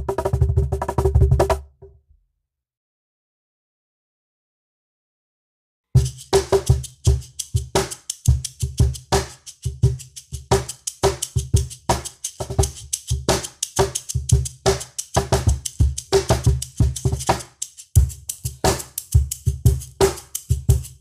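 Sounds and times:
hand shaker rattling: 6.0s - 21.0s
cajon bass tones and slaps: 10.5s - 21.0s.

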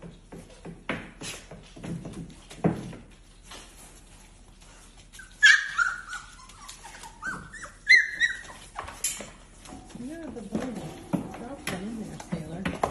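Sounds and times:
dog whining and yipping: 5.1s - 9.0s.

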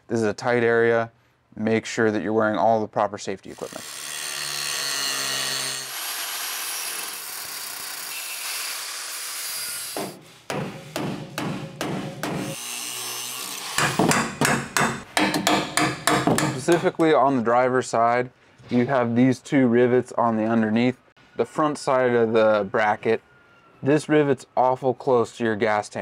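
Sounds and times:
angle grinder cutting metal: 3.5s - 10.1s, 12.4s - 14.0s.

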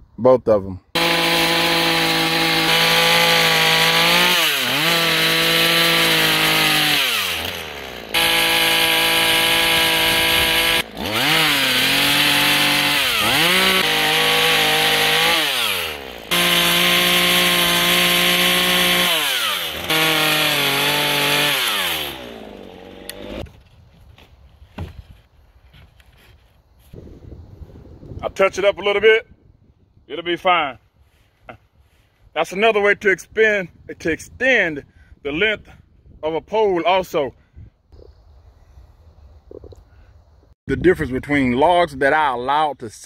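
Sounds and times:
electric chainsaw cutting log: 1.0s - 23.6s.

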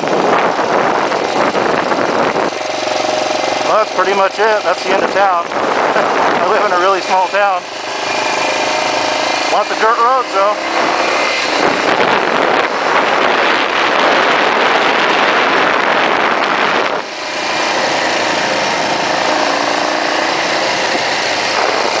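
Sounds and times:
loud rushing noise: 0.0s - 22.0s
motorcycle engine running: 0.0s - 22.0s.

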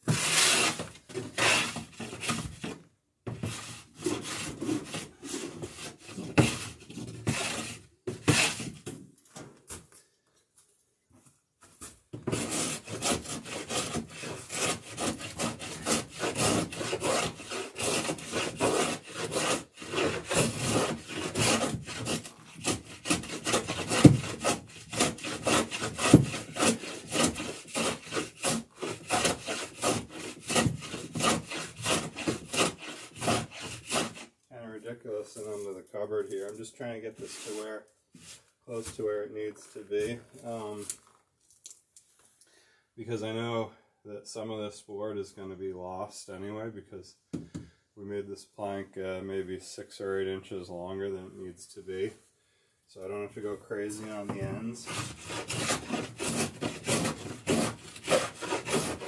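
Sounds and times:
hand tool scraping wood: 0.0s - 8.9s, 11.8s - 34.4s, 35.4s - 39.1s, 53.8s - 59.0s.

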